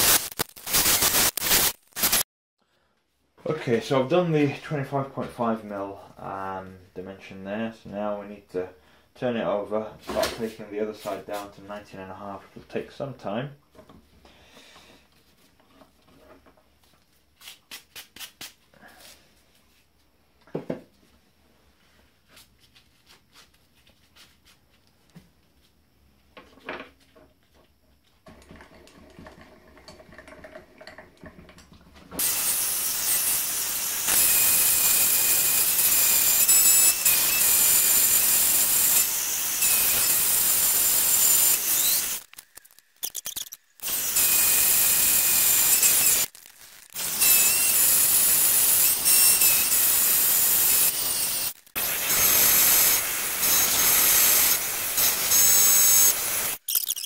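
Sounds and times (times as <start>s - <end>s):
hissing metal cutting whine: 32.2s - 57.0s.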